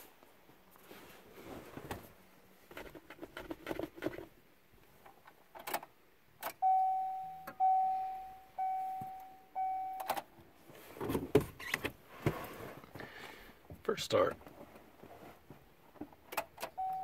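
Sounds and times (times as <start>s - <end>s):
rustling handling noise: 0.0s - 4.3s
dashboard warning chime: 6.6s - 10.3s, 16.7s - 17.0s.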